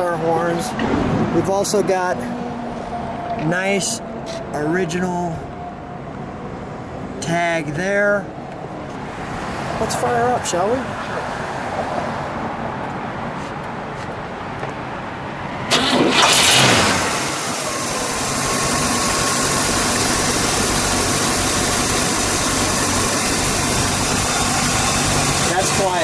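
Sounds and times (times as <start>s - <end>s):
car engine starting and idling: 15.6s - 26.0s.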